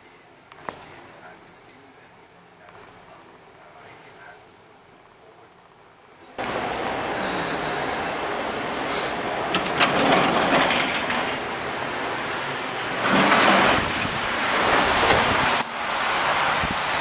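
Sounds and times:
glass doors clicking open: 9.5s - 11.5s
wind on microphone: 13.4s - 15.6s, 16.4s - 17.0s.

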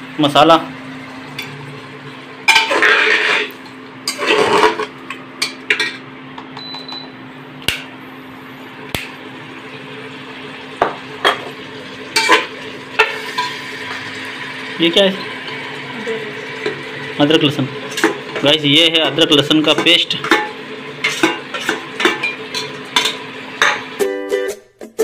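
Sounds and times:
metal ladle scraping a pot: 2.5s - 4.9s.

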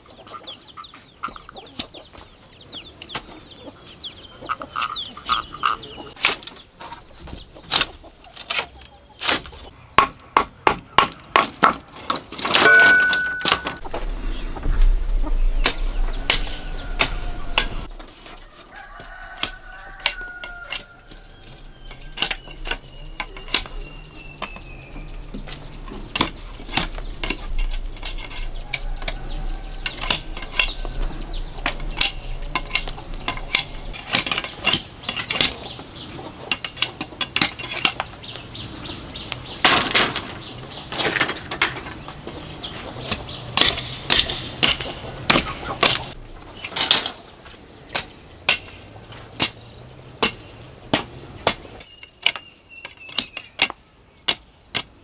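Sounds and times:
machete chopping bamboo: 7.7s - 13.8s, 43.1s - 46.2s, 50.2s - 55.0s.

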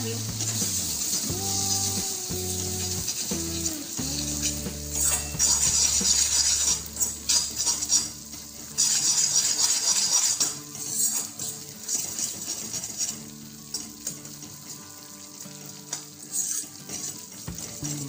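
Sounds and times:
ghee sizzling: 0.0s - 18.0s
spoon scraping a metal pan: 4.2s - 8.2s, 8.8s - 13.1s.

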